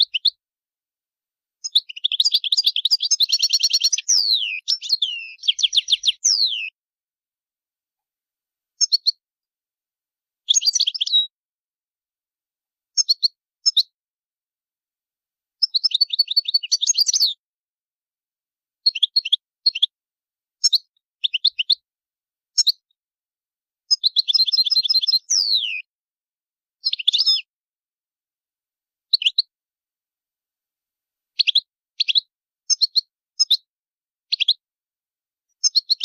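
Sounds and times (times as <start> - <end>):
goldfinch twittering calls: 1.6 - 6.7, 8.8 - 9.2, 10.5 - 11.3, 18.9 - 19.9, 23.9 - 25.8, 26.8 - 27.5, 31.4 - 33.6, 34.3 - 34.6, 35.6 - 36.0.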